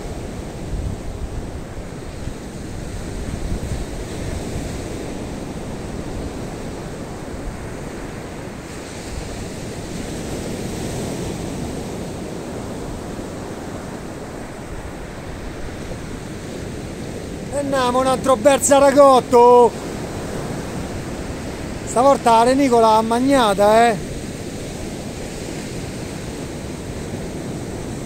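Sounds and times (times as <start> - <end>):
surf breaking on beach: 0.0 - 28.0
wind rumbling on microphone: 0.0 - 28.0.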